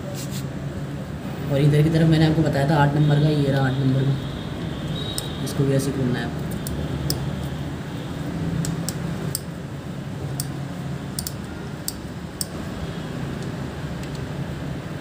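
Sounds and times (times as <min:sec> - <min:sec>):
ratchet wrench clicking: 0:08.6 - 0:09.6, 0:10.3 - 0:10.6, 0:11.2 - 0:12.6.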